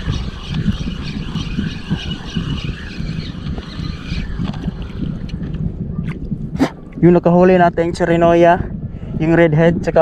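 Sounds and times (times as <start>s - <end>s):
fishing reel whirring: 0.0s - 5.4s
wind buffeting microphone: 0.0s - 10.0s.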